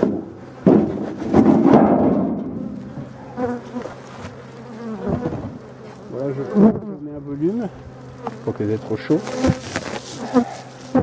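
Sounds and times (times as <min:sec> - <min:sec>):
wooden hive box knocks and scrape: 0:00.0 - 0:04.4, 0:05.0 - 0:06.0, 0:08.2 - 0:11.0
bees buzzing: 0:00.0 - 0:11.0.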